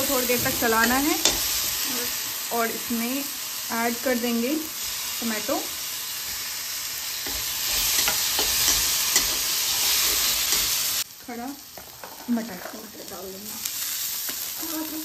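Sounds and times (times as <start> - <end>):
food sizzling in hot oil: 0.0 - 15.0
spatula scraping a pan: 6.1 - 11.0.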